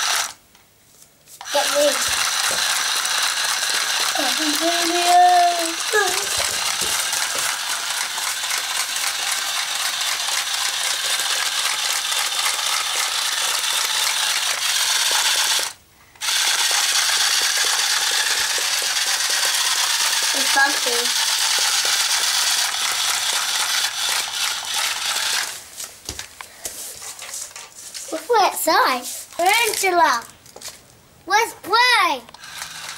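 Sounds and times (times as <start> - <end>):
toy motor and gearbox ratcheting: 0.0 - 0.4, 1.4 - 25.6, 32.3 - 32.9.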